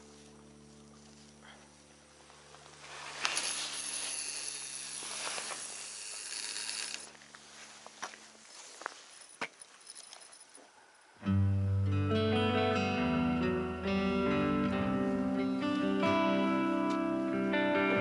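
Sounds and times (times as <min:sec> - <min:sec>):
fishing line hissing off reel: 0:02.8 - 0:07.2
reel clicks: 0:03.2 - 0:07.1.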